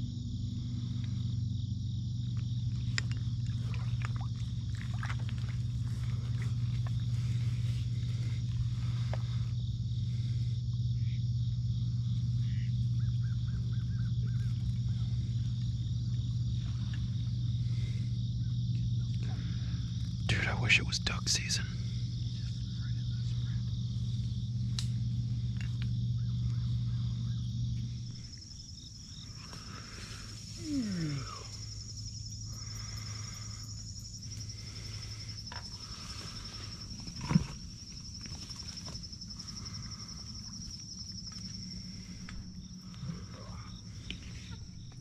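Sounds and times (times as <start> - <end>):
insects trilling: 0.0 - 45.0
low steady hum: 0.0 - 45.0.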